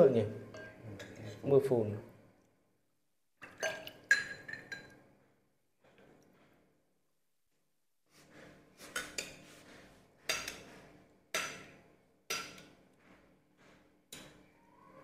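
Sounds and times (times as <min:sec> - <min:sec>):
metal ladle clinking china bowl: 0:00.5 - 0:01.4.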